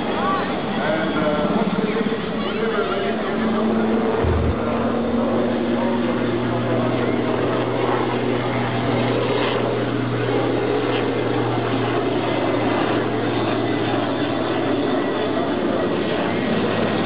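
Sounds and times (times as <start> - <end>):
helicopter rotor and turbine: 0.0 - 17.0
low hum: 4.0 - 6.4.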